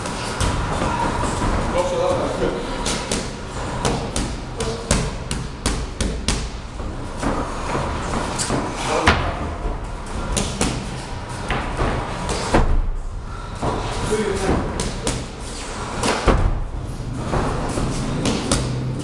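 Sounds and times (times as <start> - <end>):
punches and kicks on pads: 2.8 - 7.4, 10.3 - 13.0, 13.6 - 19.0.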